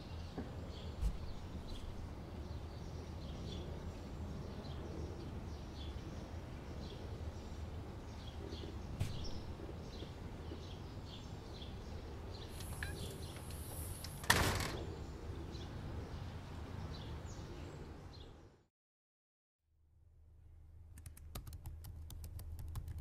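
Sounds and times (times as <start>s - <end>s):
low outdoor hum: 0.0s - 18.7s
faint bird chirps: 12.4s - 13.9s.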